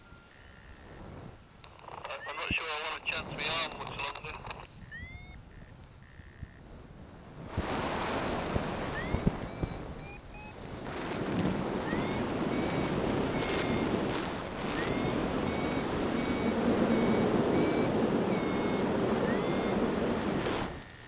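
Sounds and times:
variometer beeping: 4.8s - 6.6s, 8.9s - 10.6s, 11.8s - 21.0s
wind rushing over microphone: 6.6s - 21.0s.

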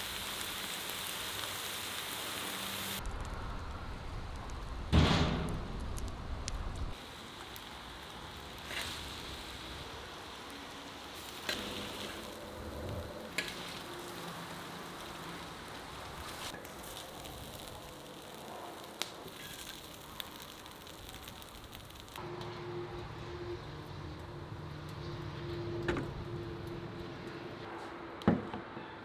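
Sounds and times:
meat sizzling in a pan: 0.0s - 3.0s, 6.9s - 22.2s.

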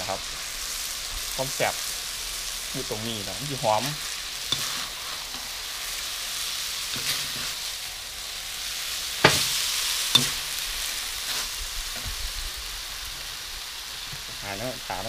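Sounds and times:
noodles sizzling in a wok: 0.0s - 15.0s
metal spatula scraping wok: 3.5s - 7.9s, 9.2s - 12.2s.

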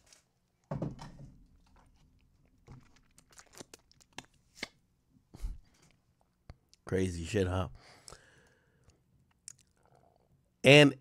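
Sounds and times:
plastic cup crinkling: 1.6s - 4.8s.

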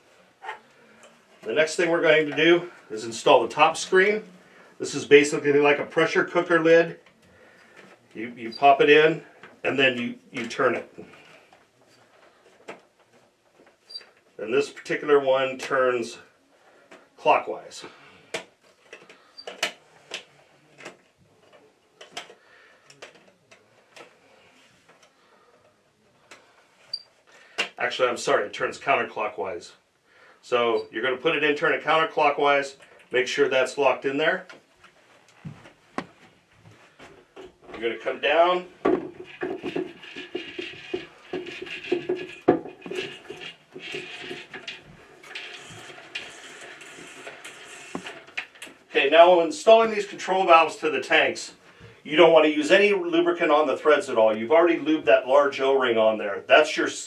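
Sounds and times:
plastic valve scraping and clicking: 38.8s - 48.8s.

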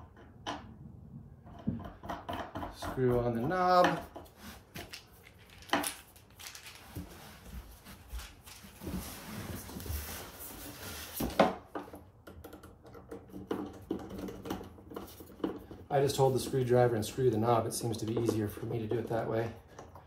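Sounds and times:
light clicks and handling noise: 2.9s - 9.1s.

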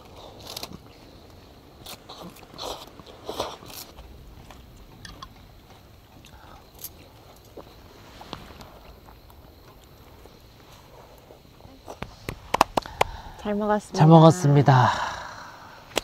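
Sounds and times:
crunchy bites and chewing: 0.0s - 5.4s.

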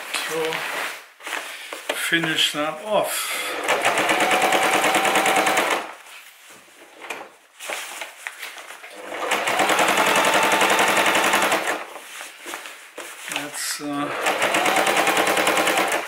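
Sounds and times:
sewing machine stitching: 3.4s - 6.0s, 8.9s - 11.9s, 14.0s - 16.0s.

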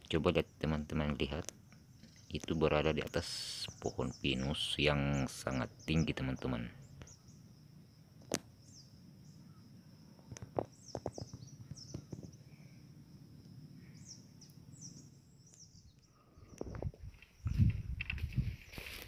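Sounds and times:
steady high hum: 0.0s - 17.1s
small birds chirping: 0.0s - 19.0s
footsteps through undergrowth: 17.2s - 19.0s.

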